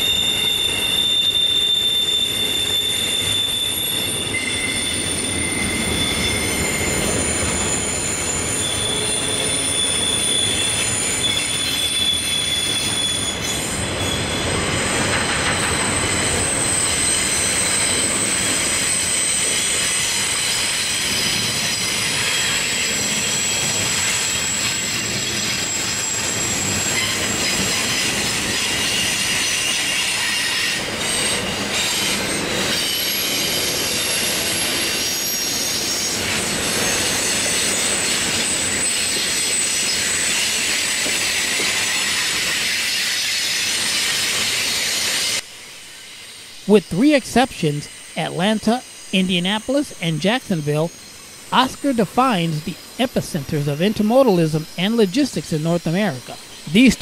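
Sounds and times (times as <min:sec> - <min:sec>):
high-pitched wheel flange squeals: 0:00.0 - 0:45.2
train wheels rumbling on rails: 0:00.0 - 0:45.4.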